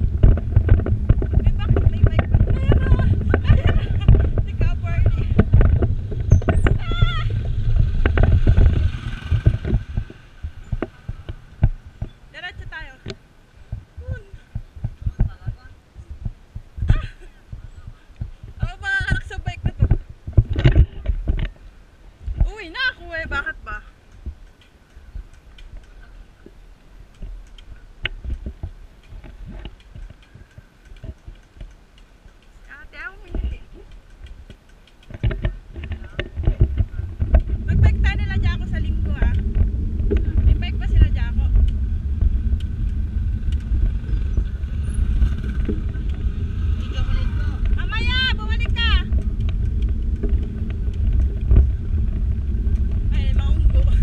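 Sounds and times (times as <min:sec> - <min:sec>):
bicycle rattling on rough concrete: 0:00.0 - 0:54.0
low rumble of rolling: 0:00.0 - 0:54.0
wind buffeting microphone: 0:00.0 - 0:54.0.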